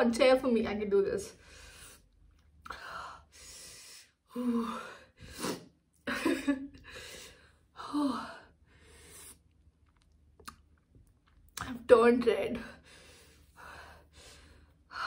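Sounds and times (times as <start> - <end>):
woman breathing hard and gasping: 6.8 - 9.4.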